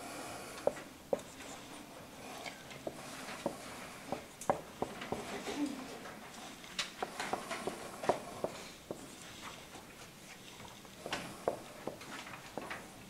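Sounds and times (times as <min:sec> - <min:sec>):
marker tapping on whiteboard: 0:02.8 - 0:05.3, 0:07.0 - 0:09.1, 0:11.4 - 0:12.0.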